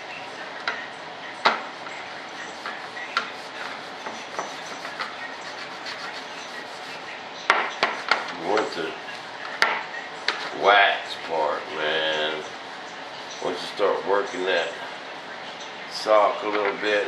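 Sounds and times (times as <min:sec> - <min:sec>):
hand scrubbing wax on mold: 0:02.4 - 0:07.1.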